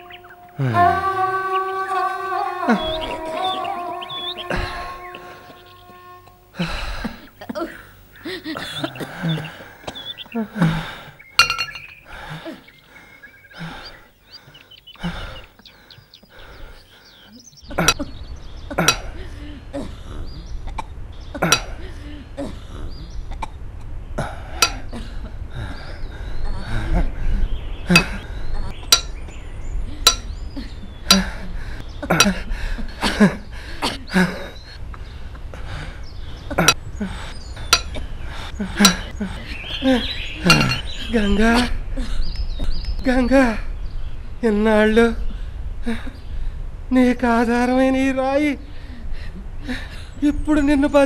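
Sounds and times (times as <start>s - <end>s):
man sobbing: 0.0s - 7.6s
small birds chirping: 0.0s - 51.0s
sharp clinks: 11.4s - 12.0s, 28.9s - 29.2s.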